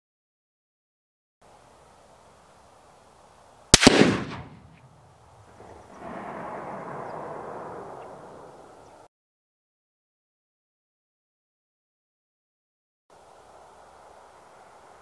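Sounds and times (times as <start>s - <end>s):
steady hiss: 1.4s - 7.0s, 13.1s - 15.0s
rifle shot with echo: 3.8s - 4.8s, 6.0s - 8.4s.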